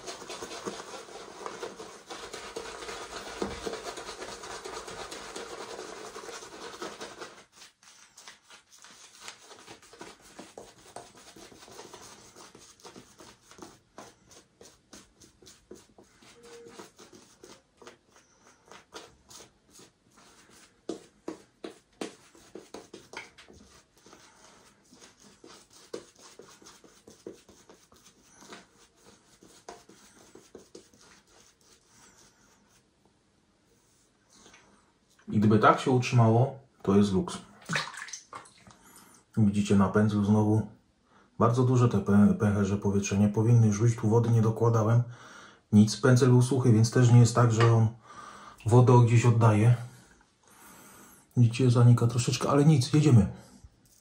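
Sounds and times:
shaving brush wet swishing: 0.0 - 32.8.

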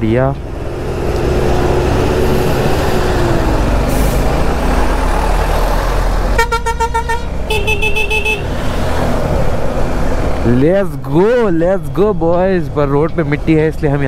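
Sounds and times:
wind rumble: 0.0 - 6.4
motorcycle road noise: 0.0 - 14.0
vehicle horn blasts: 6.4 - 8.5.

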